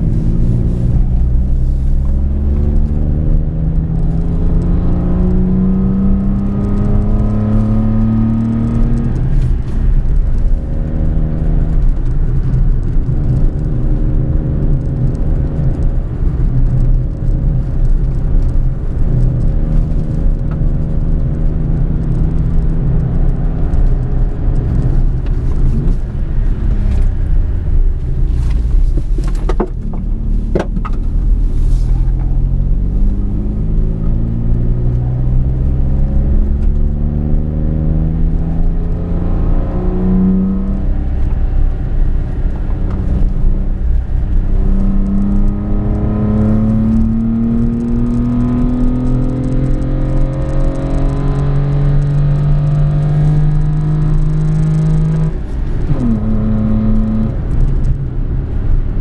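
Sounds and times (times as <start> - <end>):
car engine accelerating: 0.0 - 59.0
low road rumble: 0.0 - 59.0.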